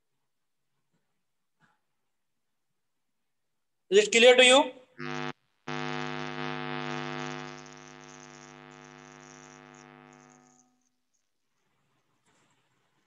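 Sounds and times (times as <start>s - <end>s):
sustained pitched tone: 5.0s - 10.7s.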